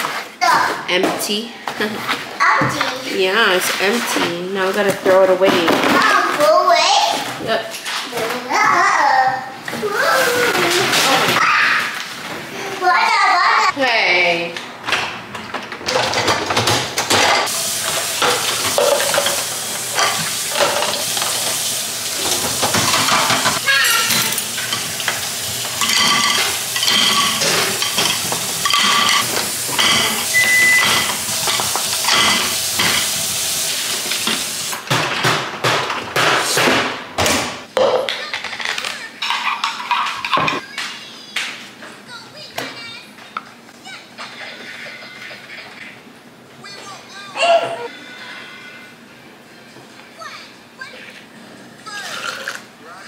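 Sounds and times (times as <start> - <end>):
dishes and cutlery clattering: 14.9 - 21.6, 22.2 - 33.2, 37.8 - 40.6.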